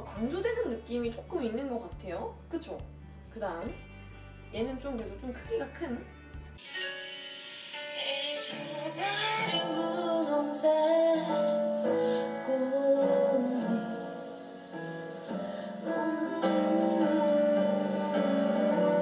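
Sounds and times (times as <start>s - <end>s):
woman singing over piano: 7.9s - 19.0s.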